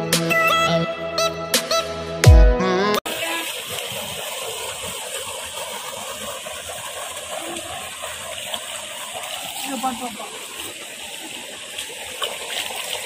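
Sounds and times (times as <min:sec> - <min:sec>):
stream rushing over rocks: 0:03.1 - 0:13.0.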